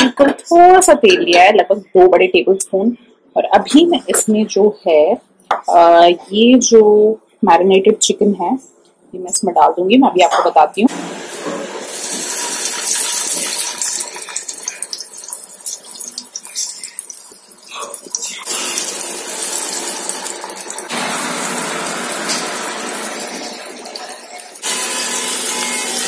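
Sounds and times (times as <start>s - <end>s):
chicken sizzling in hot oil: 10.9s - 26.0s.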